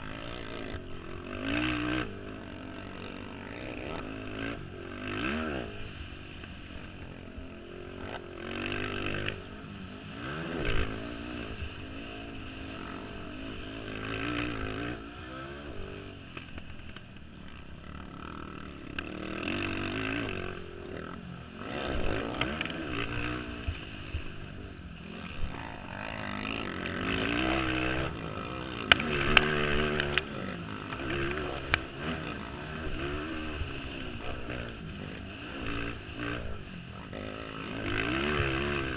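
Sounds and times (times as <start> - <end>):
quad engines revving: 0.0 - 38.9.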